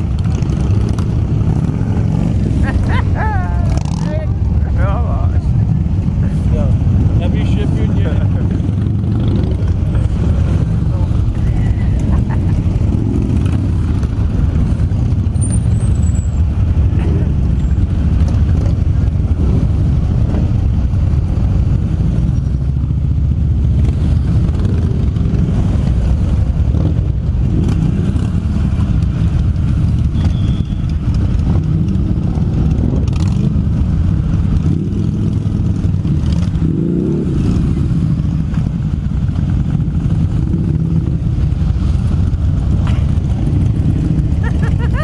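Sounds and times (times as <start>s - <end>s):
motorcycle engine revving: 0.0s - 4.6s, 5.5s - 45.0s
motorcycle engines rumbling: 0.0s - 45.0s.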